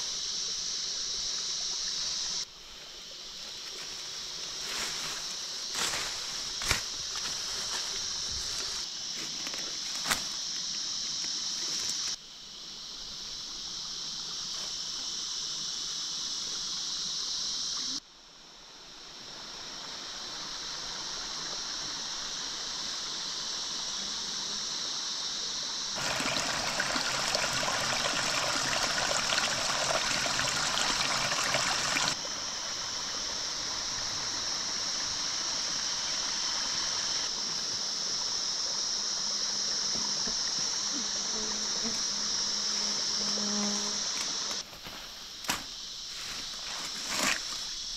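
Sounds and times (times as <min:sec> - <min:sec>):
high-pitched hiss: 0:00.0 - 0:47.9
stream trickling over rocks: 0:26.0 - 0:40.7.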